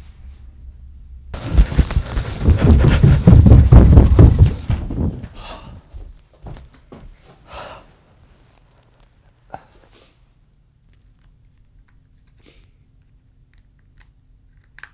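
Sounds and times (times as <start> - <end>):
handling and rustling: 1.4 - 5.4, 8.2 - 9.4
footsteps running down stairs: 1.4 - 7.4.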